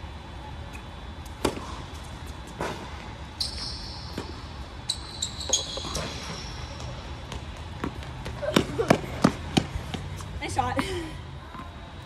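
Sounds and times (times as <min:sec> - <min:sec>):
tennis ball hit by rackets: 0:01.4 - 0:01.8
sneaker squeaks on court: 0:03.4 - 0:08.0.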